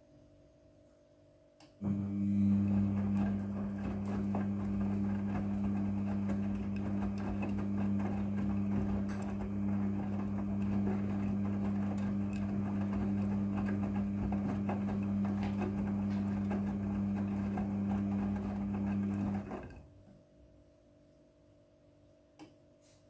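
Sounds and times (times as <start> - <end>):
washing machine drum tumbling: 1.8 - 19.8.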